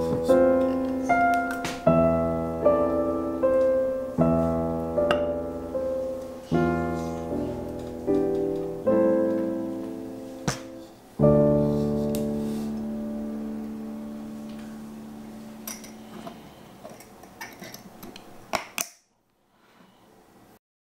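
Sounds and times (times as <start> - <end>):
piano chord ringing: 0.0 - 16.7.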